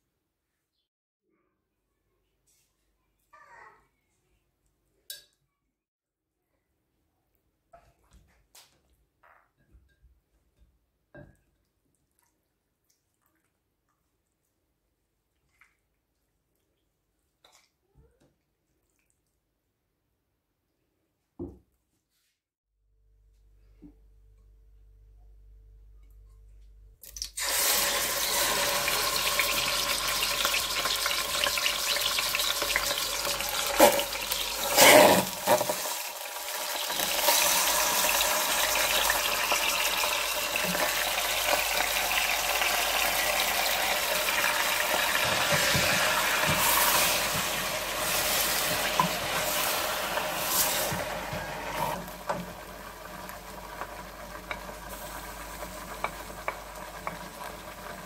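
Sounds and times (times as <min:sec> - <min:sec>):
chicken sizzling in hot oil: 0:27.2 - 0:58.0.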